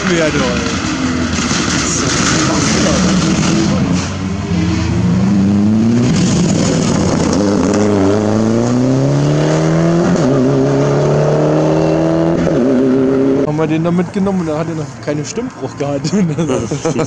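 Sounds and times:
rally car engine accelerating: 0:00.0 - 0:13.5.

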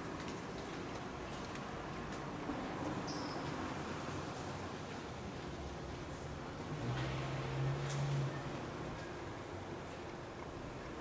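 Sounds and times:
outdoor background noise: 0:00.0 - 0:11.0
faint light ticks: 0:07.8 - 0:09.2.

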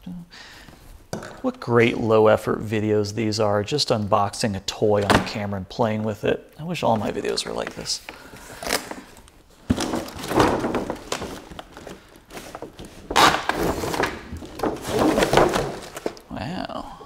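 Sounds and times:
box thunk: 0:05.0 - 0:05.4, 0:09.6 - 0:11.4, 0:13.2 - 0:16.2
packaging rustling and crinkling: 0:06.9 - 0:16.3.

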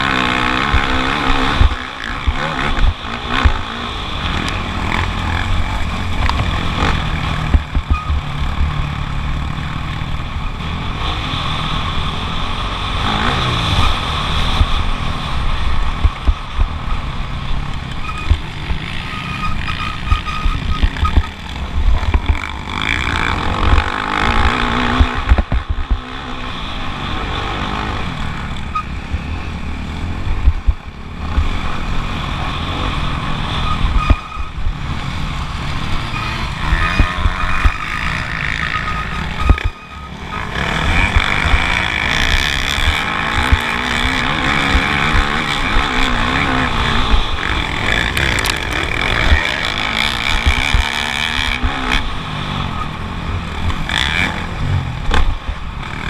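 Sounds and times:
motocross bike engine revving: 0:00.0 - 0:56.0
low thumps: 0:30.3 - 0:31.5.

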